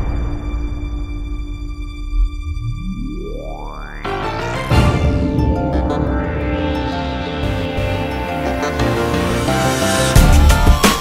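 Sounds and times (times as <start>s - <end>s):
low rumble: 0.0s - 9.6s
rising sweep: 2.0s - 10.5s
held music tones: 2.2s - 11.0s.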